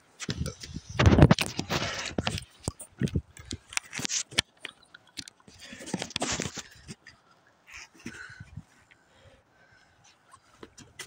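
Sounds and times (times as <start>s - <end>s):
crunching and scraping handling noises: 0.2s - 9.0s.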